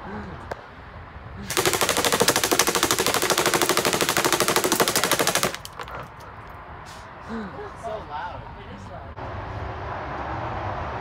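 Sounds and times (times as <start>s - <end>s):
airsoft gun firing rapidly: 1.5s - 5.9s.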